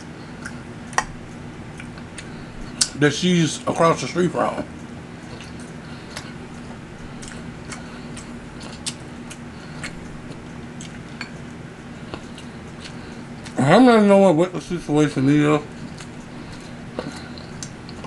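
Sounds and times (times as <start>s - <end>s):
steady low hum: 0.0s - 18.0s
chewing: 0.2s - 3.0s, 4.5s - 13.6s, 15.7s - 18.0s.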